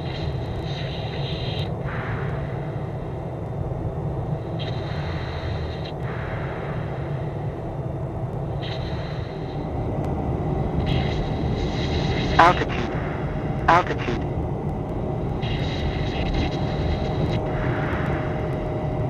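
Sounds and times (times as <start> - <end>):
jet engine and airflow rumble: 0.0 - 19.0
high hiss: 8.6 - 9.6.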